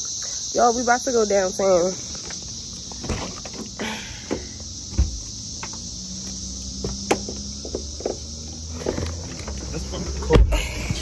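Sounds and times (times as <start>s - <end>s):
cicada chorus: 0.0s - 11.0s
sharp knocks and thumps: 2.2s - 5.8s, 6.8s - 9.6s.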